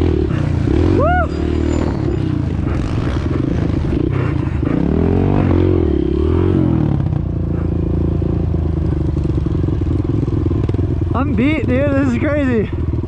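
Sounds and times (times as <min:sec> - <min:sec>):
dirt bike engine revving: 0:00.0 - 0:12.8.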